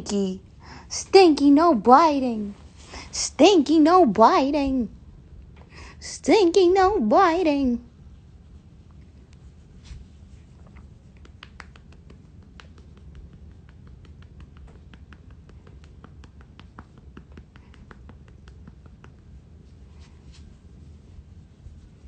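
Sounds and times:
light clicks and taps: 0:10.6 - 0:19.4.

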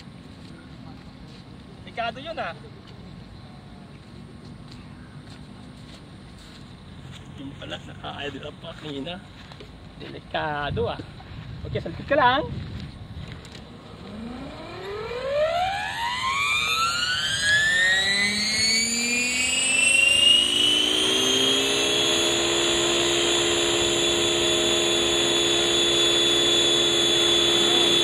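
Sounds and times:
model helicopter rotor whine: 0:13.5 - 0:28.0.

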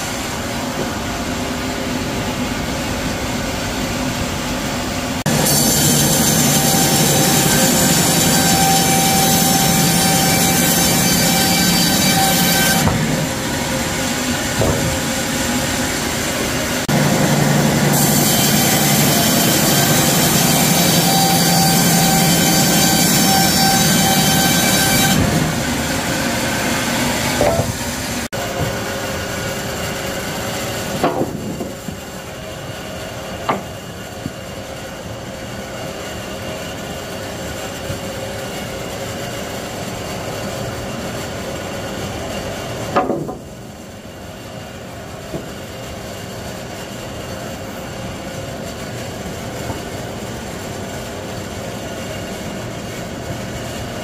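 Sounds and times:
sawmill saw cutting timber: 0:05.2 - 0:41.0.

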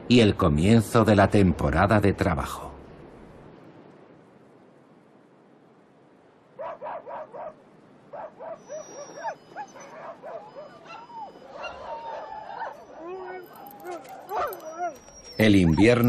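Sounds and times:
dogs yipping and whining: 0:06.6 - 0:16.0.

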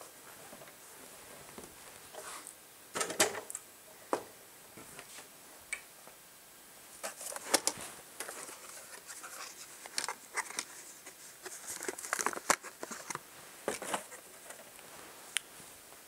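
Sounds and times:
small objects clicking and rustling: 0:07.0 - 0:14.8.

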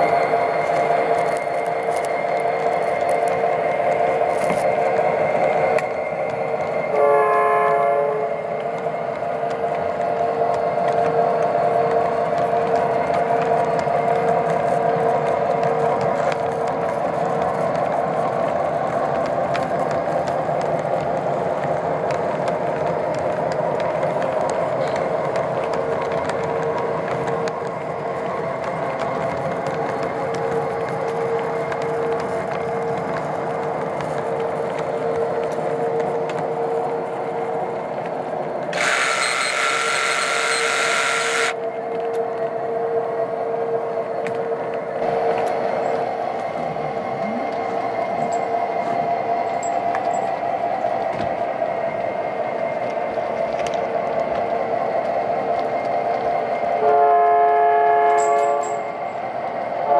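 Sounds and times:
constant hum: 0:00.0 - 0:59.9
model train rolling on track: 0:00.0 - 0:59.9
model train horn: 0:06.9 - 0:08.4, 0:56.8 - 0:58.9.

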